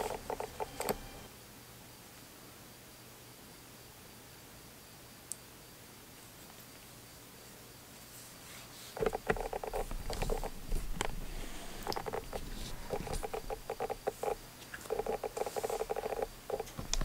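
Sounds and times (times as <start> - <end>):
headphone buzzing against microphone: 0.0 - 1.3, 9.0 - 16.8.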